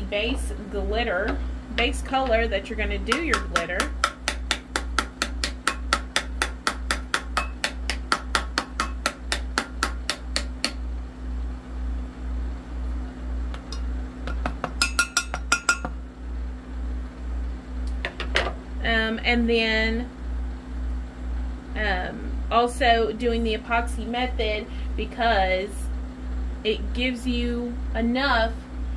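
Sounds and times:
sharp tapping on a tumbler: 3.1 - 10.8, 13.5 - 16.0.

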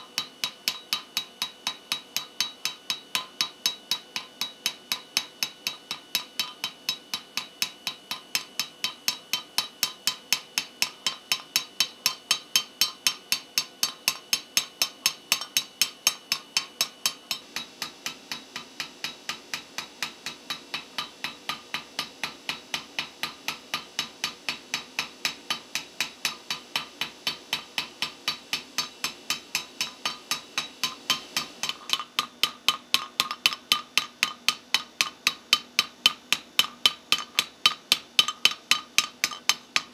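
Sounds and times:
hammer striking hot steel: 0.0 - 39.9.

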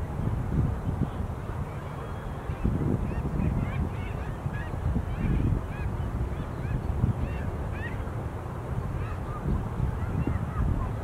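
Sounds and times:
flock of birds calling: 1.7 - 8.1, 8.8 - 11.0.

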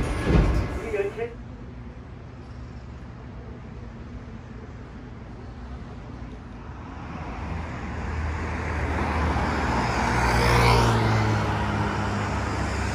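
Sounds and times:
low traffic rumble: 0.0 - 12.9
car passing close by: 6.8 - 12.9.

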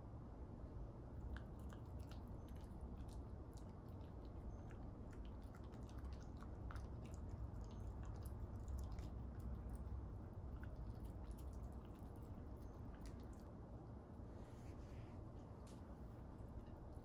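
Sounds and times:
puppy chewing food: 1.0 - 13.8.

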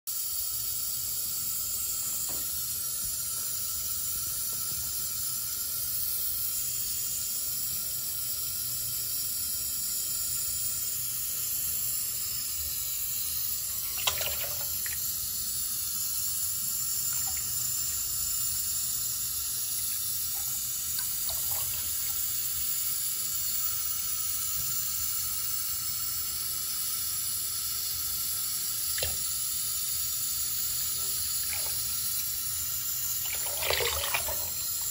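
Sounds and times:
tap water running into sink: 1.4 - 6.7, 11.7 - 25.5, 27.6 - 34.9
water splash: 13.8 - 15.0, 33.2 - 34.6.

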